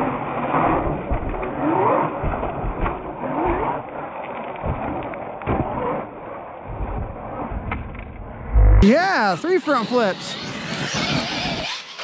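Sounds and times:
toy truck tumbling knocks: 0.7s - 3.8s.

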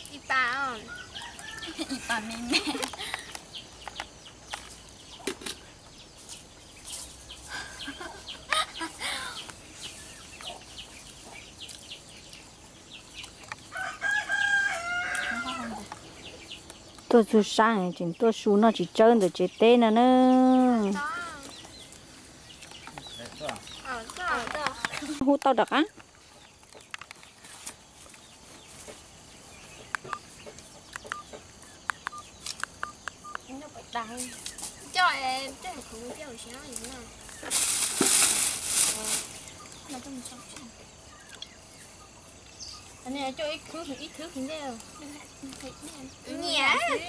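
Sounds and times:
faint chirps: 0.0s - 37.9s
chickens clucking: 7.2s - 17.5s.

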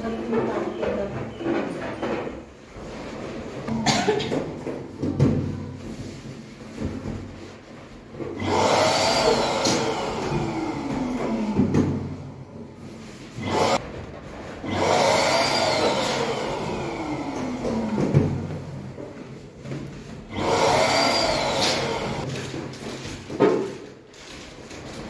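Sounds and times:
electric balloon inflator motor: 8.2s - 12.2s, 13.3s - 13.9s, 14.6s - 18.6s, 20.1s - 22.3s.

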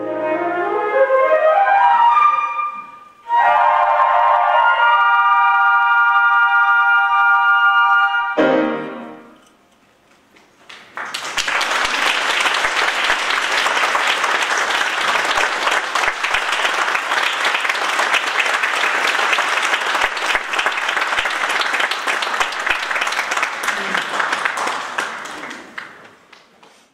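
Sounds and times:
flute ensemble chord: 0.0s - 9.3s
audience applause: 10.6s - 26.6s.

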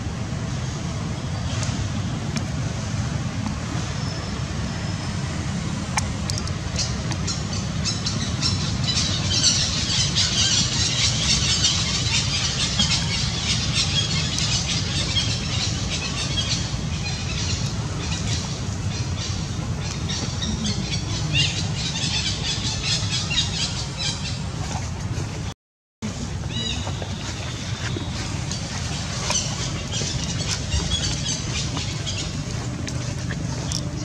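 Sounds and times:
steady low rumble: 0.0s - 34.0s.

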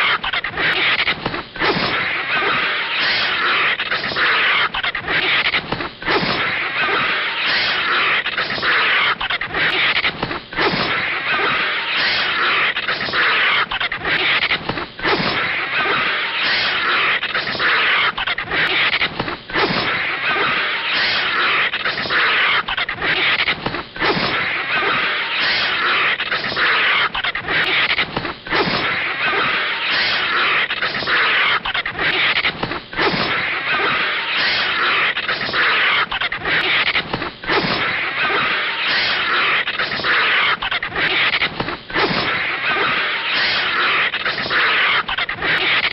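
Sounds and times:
vulture screeching: 1.6s - 5.5s, 6.1s - 10.0s, 10.6s - 14.4s, 15.0s - 19.0s, 19.6s - 23.4s, 24.0s - 27.9s, 28.5s - 32.4s, 33.0s - 36.9s, 37.5s - 41.4s.

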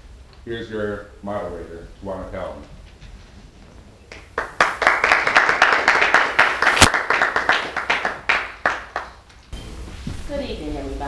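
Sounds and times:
audience applauding: 4.1s - 9.2s.

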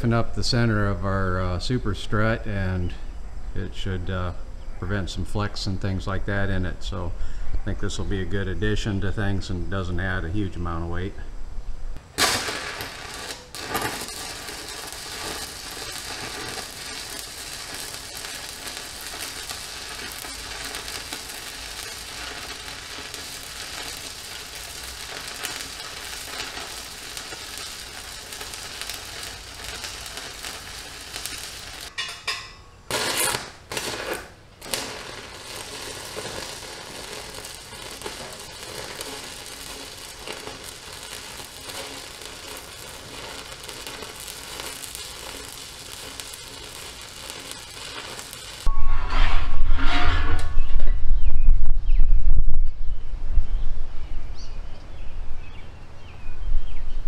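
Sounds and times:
arc welding crackling sizzle: 12.0s - 48.7s.

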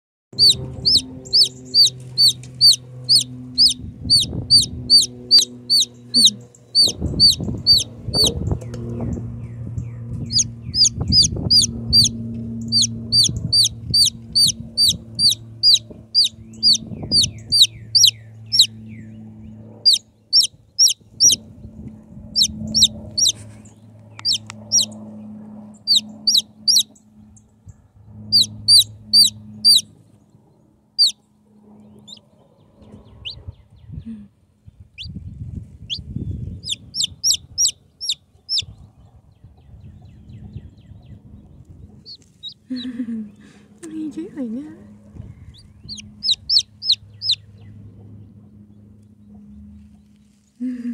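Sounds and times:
chick peeping loudly: 0.4s - 8.4s, 10.2s - 18.8s, 19.8s - 21.4s, 22.3s - 23.4s, 24.2s - 24.9s, 25.8s - 26.9s, 28.3s - 29.9s, 32.0s - 32.2s, 35.8s - 38.8s, 42.0s - 42.7s, 45.4s - 47.4s
low steady hum: 0.4s - 50.9s.

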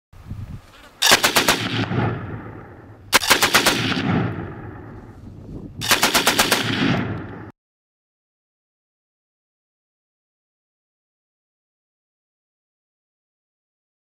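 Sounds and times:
rifle gunfire bursts: 1.0s - 5.0s, 5.8s - 7.5s.

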